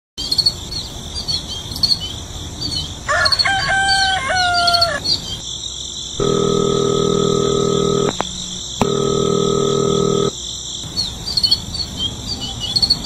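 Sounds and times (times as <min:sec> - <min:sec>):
small birds chirping: 0:00.2 - 0:03.4, 0:04.4 - 0:06.2, 0:09.6 - 0:13.0
insect trill: 0:00.2 - 0:13.0
rooster crowing: 0:03.1 - 0:05.0
droning hum: 0:06.2 - 0:10.3.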